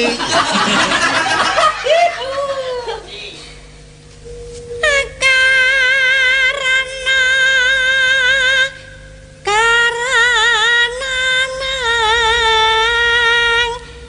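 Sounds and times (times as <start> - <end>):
woman singing with vibrato: 4.7 - 13.9.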